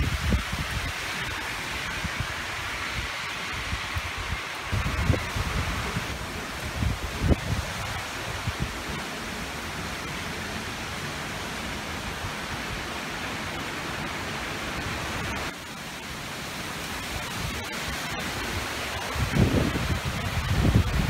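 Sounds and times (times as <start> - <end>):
wind rushing: 0.0 - 9.0, 18.5 - 21.0
wind rumbling on microphone: 0.0 - 11.0, 16.4 - 21.0
heavy rain: 0.0 - 21.0.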